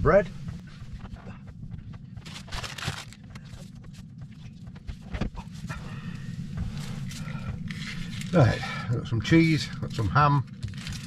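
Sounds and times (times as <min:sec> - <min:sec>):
steady low hum: 0:00.0 - 0:11.0
plastic bag rustling: 0:02.0 - 0:04.0, 0:10.5 - 0:11.0.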